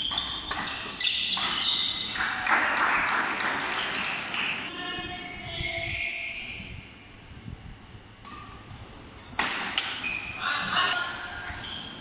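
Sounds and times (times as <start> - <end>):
shoes squeaking on court: 0.0 - 2.2, 8.3 - 10.4, 11.5 - 12.0
voices in hall: 2.1 - 7.0, 10.3 - 12.0.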